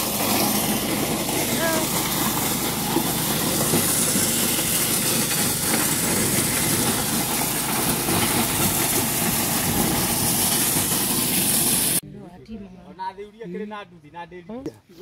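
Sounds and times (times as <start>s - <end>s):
dry maize rattling in sheller: 0.0s - 12.0s
small petrol engine droning: 0.0s - 12.0s.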